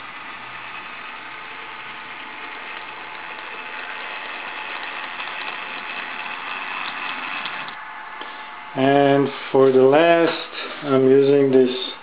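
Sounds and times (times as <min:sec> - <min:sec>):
model train motor whirring: 0:00.0 - 0:07.8
wheels clicking over rail gaps: 0:00.0 - 0:07.8.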